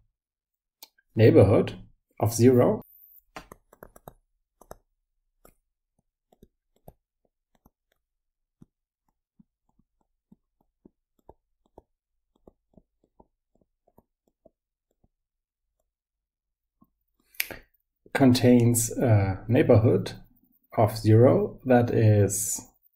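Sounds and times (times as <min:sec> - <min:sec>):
stylus tapping on tablet: 0:03.3 - 0:16.1.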